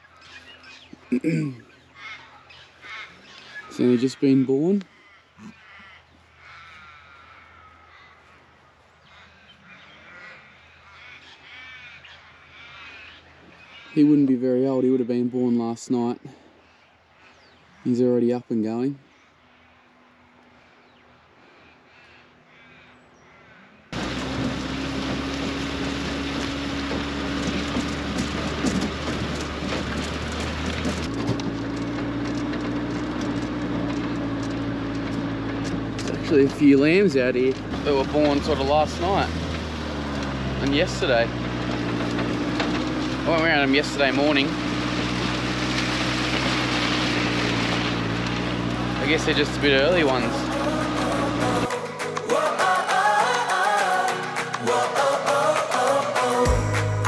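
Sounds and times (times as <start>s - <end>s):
engine drone: 0.0s - 18.2s, 23.5s - 57.0s
crows cawing: 1.7s - 14.0s, 21.4s - 24.0s
knocks and rattles: 24.0s - 36.6s, 37.5s - 49.4s
tyres and wind rushing: 24.0s - 51.8s.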